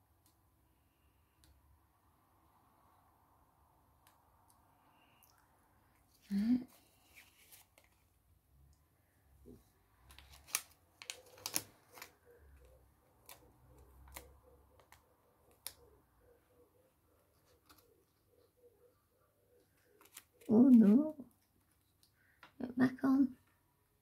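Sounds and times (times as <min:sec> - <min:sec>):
paper clicks and crinkles: 0:06.8 - 0:08.1, 0:10.0 - 0:15.8, 0:17.3 - 0:18.2, 0:19.7 - 0:22.0.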